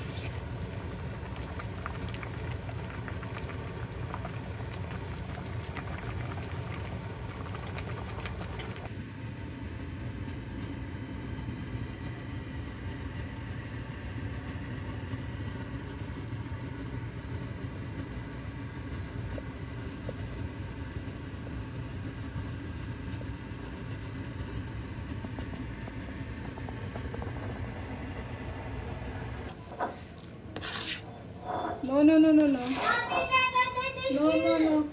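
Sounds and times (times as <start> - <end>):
bubbling crackle: 0.0 - 8.9, 24.0 - 28.6
pot boiling low rumble: 0.0 - 34.9.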